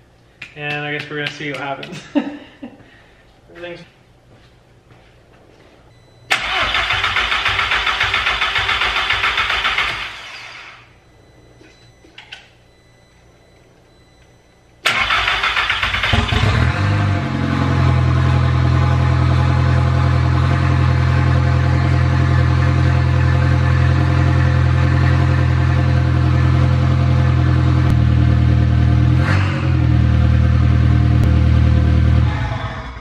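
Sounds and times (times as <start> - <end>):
car engine running: 16.1 - 33.0.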